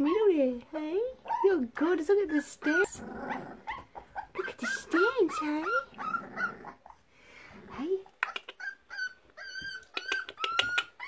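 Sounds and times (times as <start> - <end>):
puppies whimpering: 1.2 - 7.1, 8.2 - 11.0.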